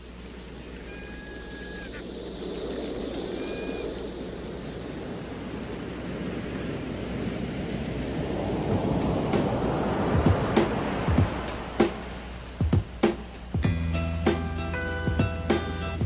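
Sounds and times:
rushing wave-like noise: 0.0s - 16.0s
music track: 10.2s - 16.0s.

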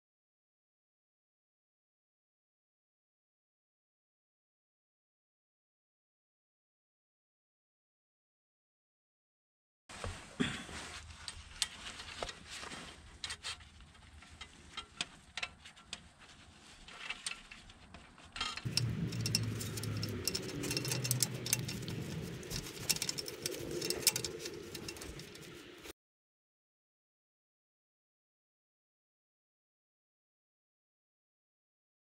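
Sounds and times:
metal bolts clicking: 18.4s - 25.6s
steady low drone: 18.7s - 25.9s.

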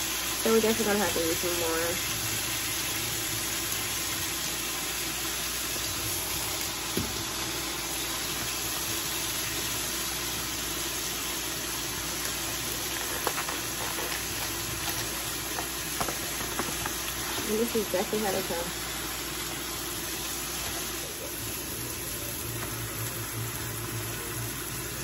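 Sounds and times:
steak sizzling in a pan: 0.0s - 25.0s.

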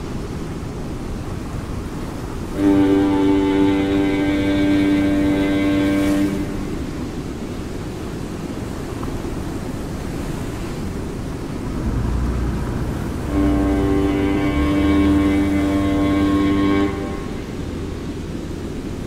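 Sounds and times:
low rough rumbling noise: 6.4s - 19.0s
deep hum: 11.6s - 17.4s
sustained low musical tones: 11.6s - 18.7s.

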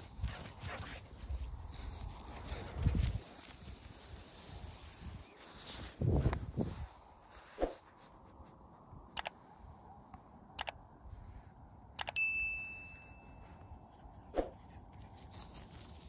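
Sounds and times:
sharp clicks: 9.1s - 9.4s, 10.5s - 10.8s, 12.0s - 12.2s
bright metallic ding: 12.2s - 13.5s.

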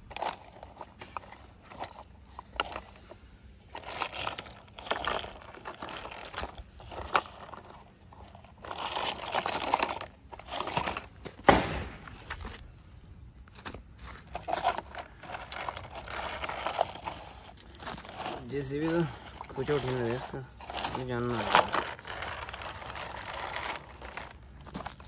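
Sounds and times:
toy wheels scraping on gravel: 0.0s - 11.4s, 13.4s - 25.0s
sharp knock: 11.4s - 12.0s.

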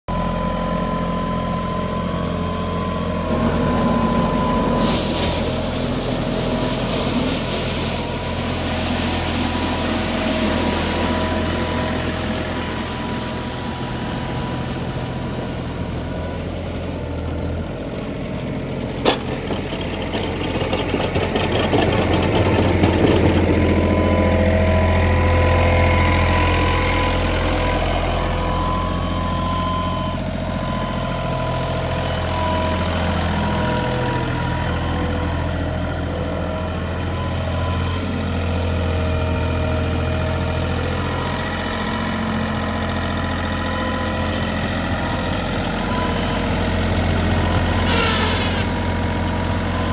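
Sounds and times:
tractor diesel engine humming: 0.1s - 49.9s.

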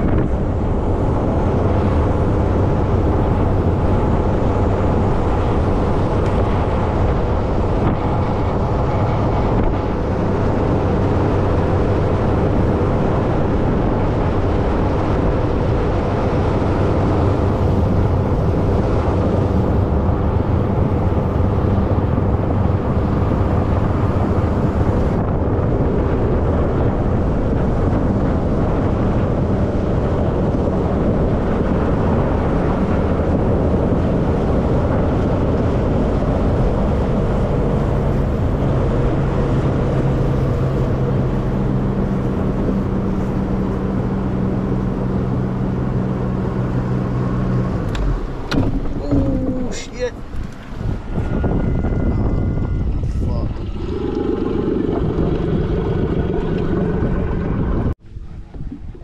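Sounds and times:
boat engine running: 0.0s - 59.0s
hull slapping choppy water: 0.0s - 59.0s
wind on microphone: 0.0s - 59.0s.

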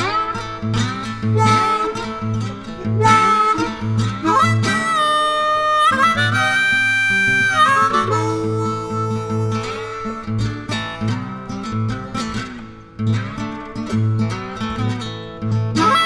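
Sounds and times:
harmonica long held notes: 0.0s - 11.2s, 15.8s - 16.0s
acoustic guitar picking: 0.0s - 16.0s.

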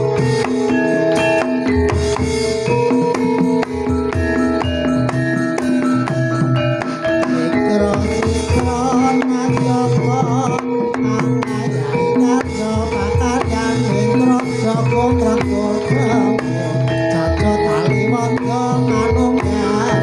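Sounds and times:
gamelan drums and metallophones: 0.0s - 20.0s
person singing wavering: 6.8s - 20.0s.

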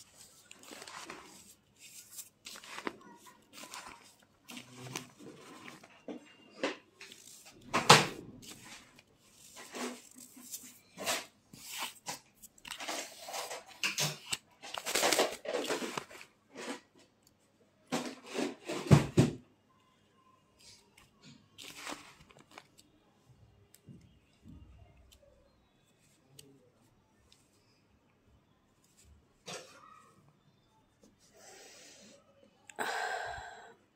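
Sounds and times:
hand crushing gritty powder: 0.0s - 6.1s.

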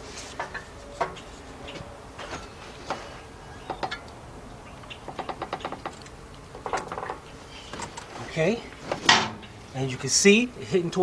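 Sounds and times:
metal knocks and clanks: 8.9s - 9.6s.

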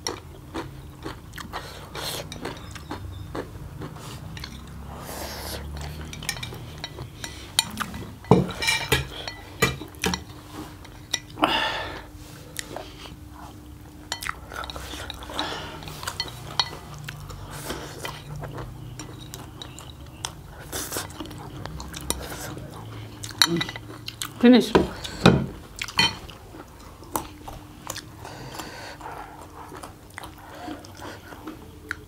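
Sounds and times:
chopsticks clinking on ceramic plates: 2.0s - 3.0s, 4.3s - 4.9s, 5.6s - 11.4s, 14.1s - 17.4s, 18.0s - 20.4s, 23.2s - 27.0s.

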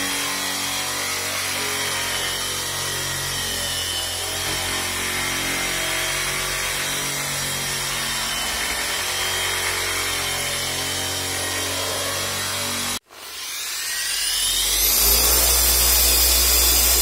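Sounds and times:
electric rotary polisher running: 9.6s - 17.0s.

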